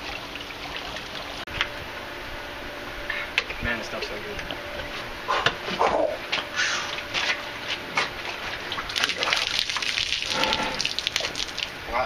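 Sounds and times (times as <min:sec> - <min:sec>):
water splashing on patio: 0:08.0 - 0:11.9.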